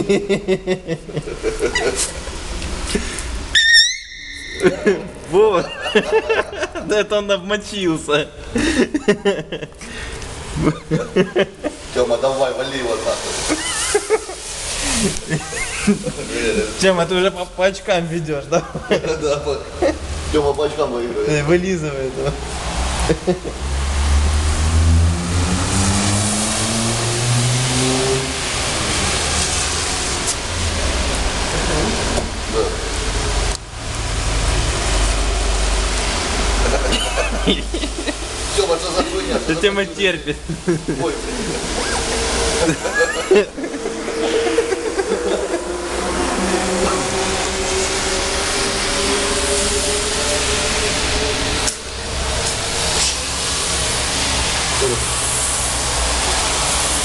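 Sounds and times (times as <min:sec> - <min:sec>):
steady hiss: 0:04.6 - 0:23.7, 0:25.6 - 0:57.0
engine running: 0:22.6 - 0:57.0.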